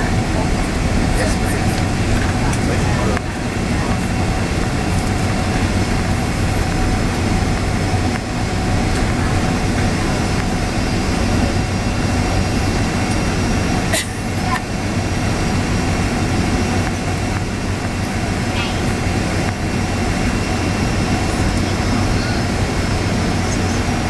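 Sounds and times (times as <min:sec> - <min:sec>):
airliner cabin rumble: 0:00.0 - 0:24.0.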